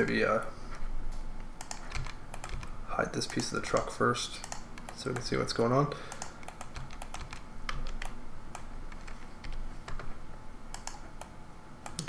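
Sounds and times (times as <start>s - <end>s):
keyboard clicks: 1.6s - 5.4s, 6.1s - 10.1s, 10.7s - 12.0s.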